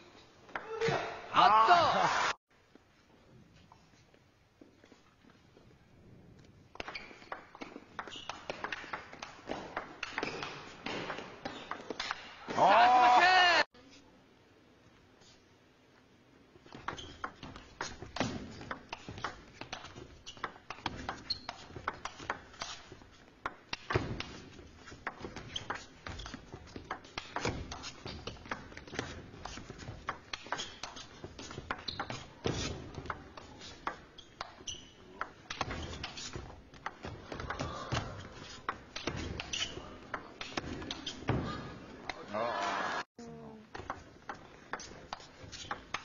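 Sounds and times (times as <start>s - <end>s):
table tennis ball hits: 6.8s - 12.2s.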